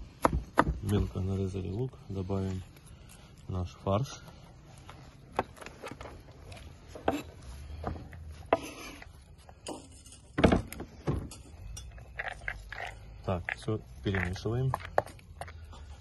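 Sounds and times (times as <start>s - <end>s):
knife scraping on cutting board: 8.4s - 9.2s.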